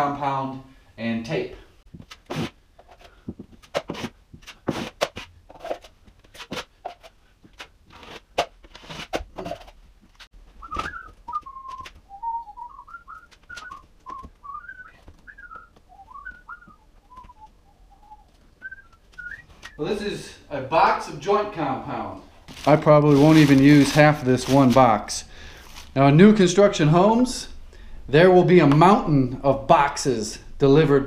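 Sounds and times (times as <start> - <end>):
drywall knife scraping: 2.1 - 9.8, 22.5 - 24.9
person whistling: 10.6 - 19.8.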